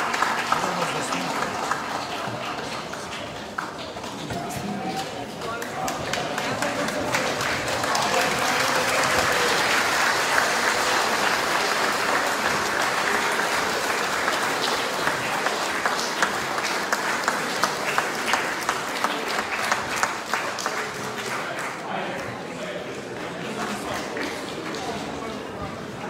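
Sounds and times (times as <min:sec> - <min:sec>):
rhythmic clapping: 0:00.0 - 0:21.8
crowd applauding: 0:00.0 - 0:25.6.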